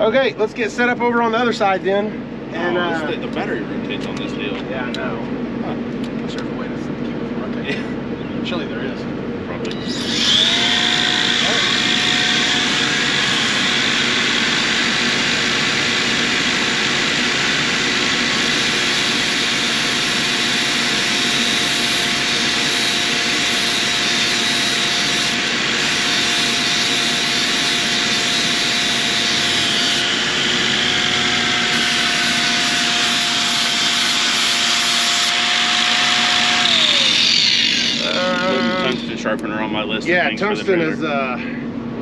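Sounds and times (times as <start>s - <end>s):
grinder winding down: 9.7s - 39.4s
power grinder running: 9.8s - 39.2s.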